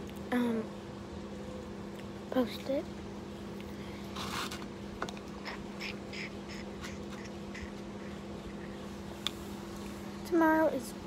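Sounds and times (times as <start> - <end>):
steady low hum: 0.0 - 11.0
crackly chewing: 5.0 - 10.0.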